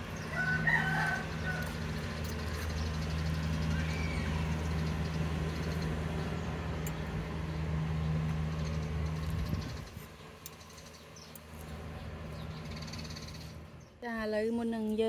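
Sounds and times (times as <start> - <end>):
engine idling hum: 0.0 - 14.0.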